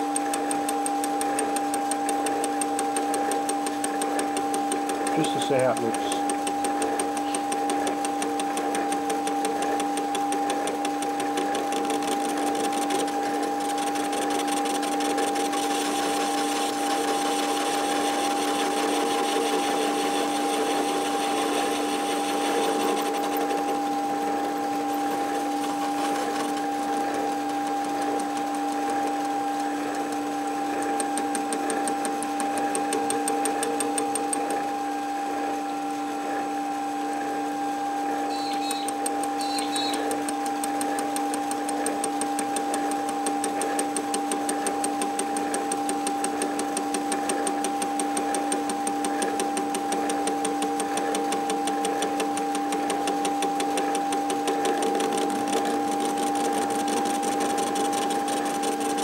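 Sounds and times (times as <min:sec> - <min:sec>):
lathe motor and gear whine: 0:00.0 - 0:59.0
lathe tool cutting metal: 0:00.3 - 0:34.8.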